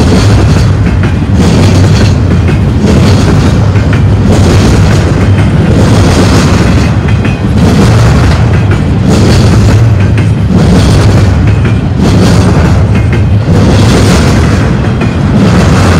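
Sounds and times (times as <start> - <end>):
train wheels rumbling on rails: 0.0 - 15.9.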